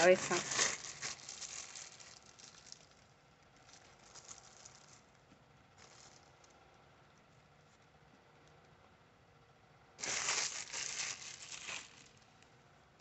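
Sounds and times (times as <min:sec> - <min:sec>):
plastic bag crinkling: 0:00.0 - 0:06.6, 0:10.0 - 0:12.4.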